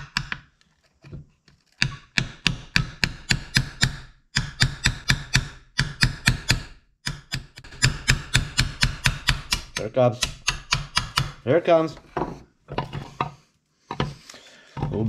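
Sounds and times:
hammer tapping a steel punch: 1.8 - 11.4.

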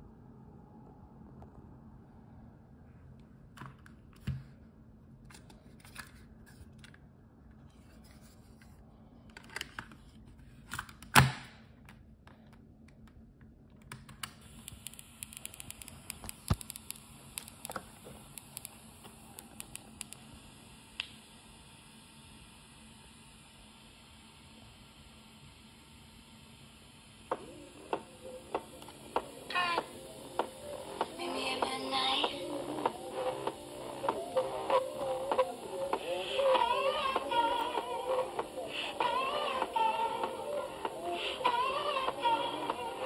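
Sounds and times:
steady hiss: 14.4 - 43.0.

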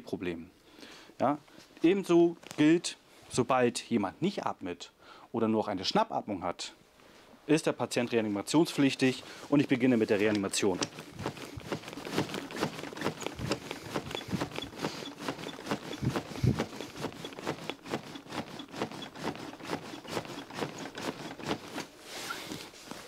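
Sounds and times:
chest compressions on manikin: 10.2 - 21.8.

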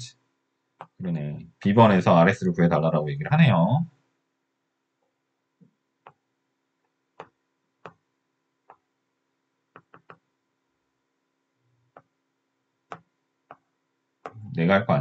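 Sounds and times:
stylus tapping tablet screen: 0.8 - 1.0, 5.6 - 8.9, 9.7 - 10.3, 11.9 - 12.2, 12.8 - 14.4.

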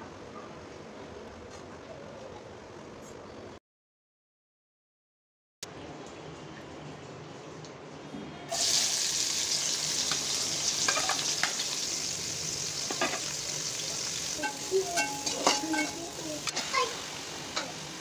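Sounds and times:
onions sizzling in hot oil: 8.5 - 18.0
metal spatula scraping pot: 14.4 - 16.0.

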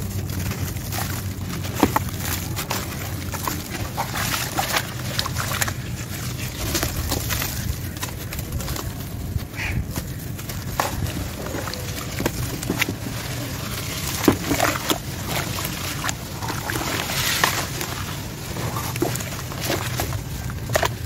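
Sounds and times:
water splashes: 0.0 - 8.8, 10.0 - 21.0
hands squelching wet sand mud: 0.0 - 21.0.

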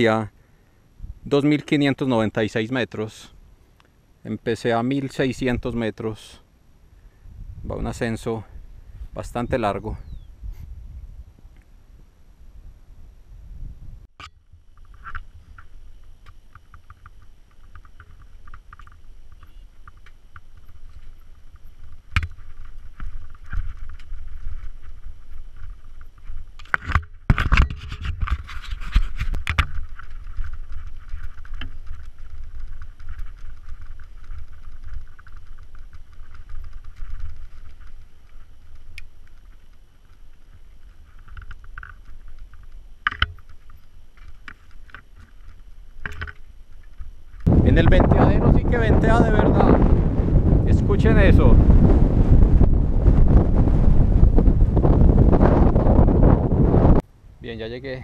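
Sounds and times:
wind buffeting microphone: 7.1 - 11.6, 12.5 - 14.1, 47.4 - 57.0
leaves and brush rustling: 14.4 - 58.0.

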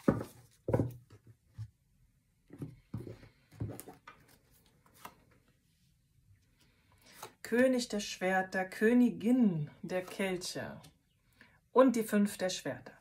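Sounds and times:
cards tapping and rustling: 0.0 - 1.1.

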